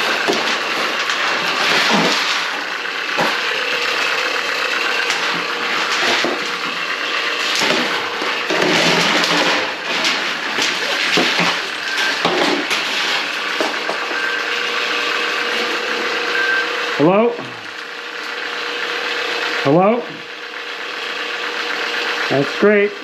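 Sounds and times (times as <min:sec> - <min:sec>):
drain-cleaning machine running: 0:00.0 - 0:23.0.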